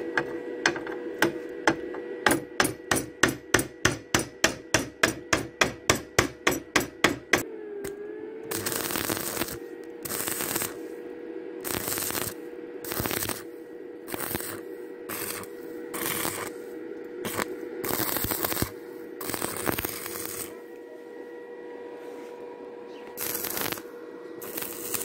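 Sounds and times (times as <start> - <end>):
faint hum: 0.0 - 25.0
welding arc crackling: 8.5 - 10.9, 11.6 - 20.6, 23.2 - 25.0.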